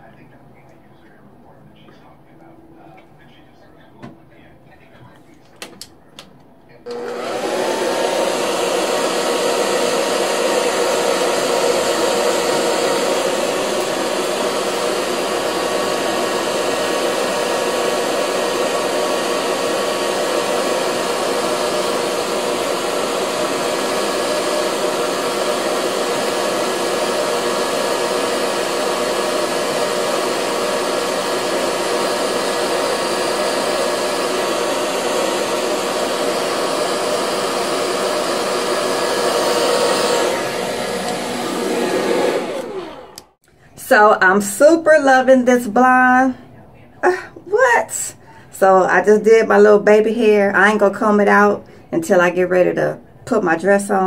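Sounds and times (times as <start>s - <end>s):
hair dryer blowing: 6.8s - 44.1s.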